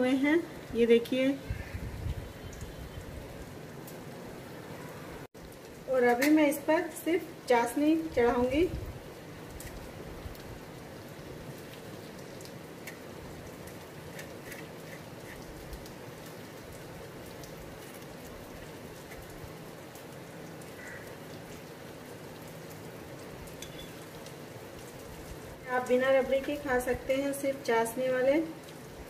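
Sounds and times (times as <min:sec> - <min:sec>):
faint steady hiss: 0:00.0 - 0:29.0.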